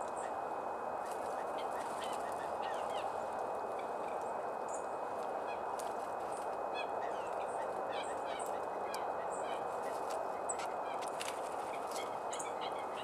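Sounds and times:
songbirds chirping: 0.0 - 13.0
steady rushing noise: 0.0 - 13.0.

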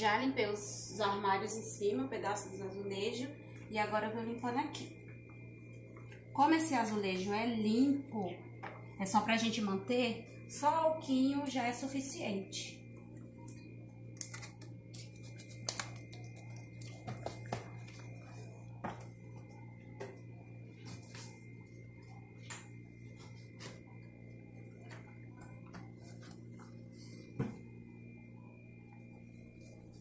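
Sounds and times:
steady low hum: 0.0 - 30.0.

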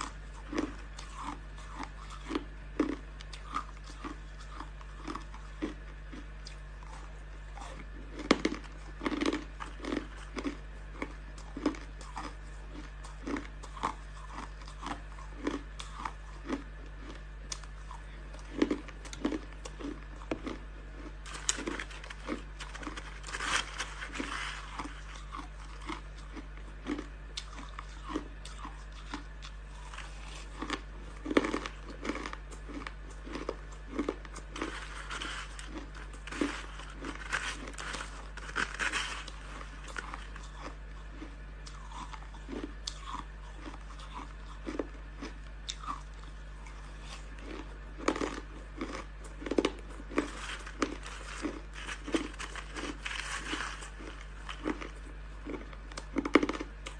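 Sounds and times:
faint low hum: 0.0 - 56.9
crushed ice crunching: 18.4 - 29.1, 29.7 - 44.8, 46.7 - 56.7.

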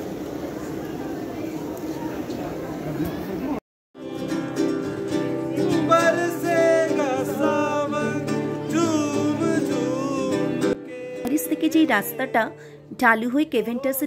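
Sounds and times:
acoustic guitar strumming: 4.0 - 14.0
man singing: 5.5 - 12.6.

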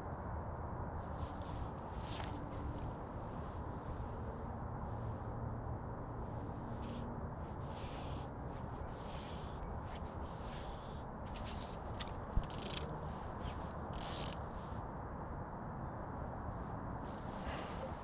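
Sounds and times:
fly line rasping zips: 7.6 - 8.3, 8.9 - 14.5.

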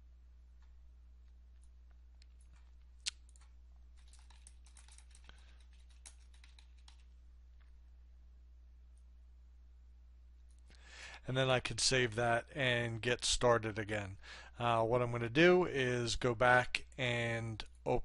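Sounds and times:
low steady hum: 0.0 - 18.0
typing on keyboard: 3.4 - 7.2.

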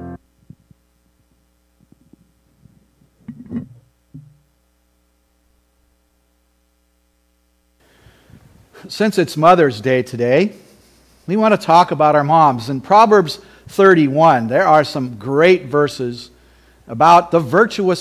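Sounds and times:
keyboard music: 0.0 - 0.2
faint steady hum: 0.0 - 18.0
microphone handling thumps: 1.8 - 4.5.

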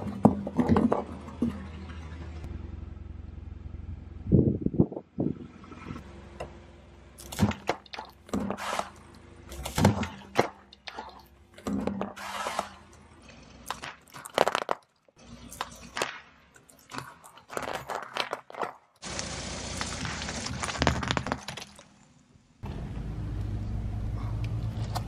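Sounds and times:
tire crushing foam blocks: 0.0 - 2.2, 7.2 - 22.4
plastic tubes bursting: 13.6 - 21.9.

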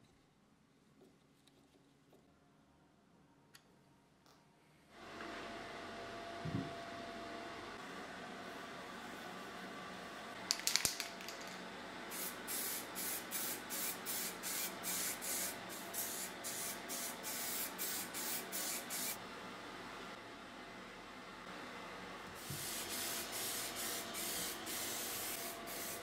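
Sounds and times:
aerosol can spraying: 12.1 - 19.2, 22.4 - 26.0.

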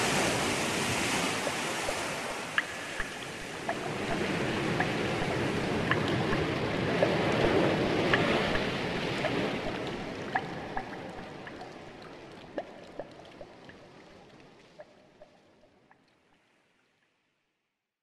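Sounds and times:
water splashing: 0.0 - 15.4
water drop plinks: 1.5 - 13.8.

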